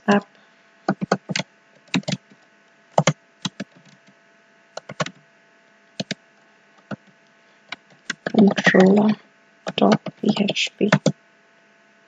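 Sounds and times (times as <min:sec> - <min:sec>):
keyboard keys clicking: 0:00.9 - 0:02.3, 0:03.0 - 0:04.1, 0:04.8 - 0:05.2, 0:06.0 - 0:06.2, 0:07.7 - 0:08.9, 0:09.7 - 0:11.1.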